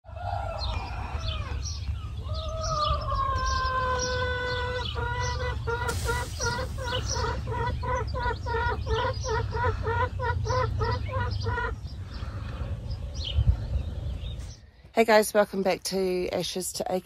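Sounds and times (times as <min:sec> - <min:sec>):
hen calling: 0:00.4 - 0:12.4
hen clucking: 0:02.7 - 0:12.7.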